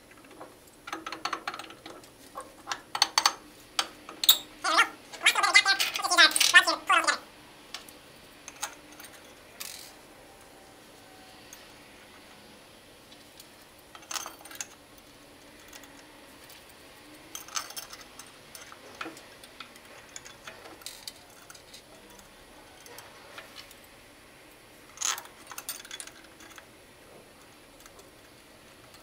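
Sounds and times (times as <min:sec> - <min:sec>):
light metallic clicks and clinks: 0:00.2 - 0:04.5, 0:07.8 - 0:10.5, 0:13.1 - 0:23.9, 0:24.9 - 0:26.7.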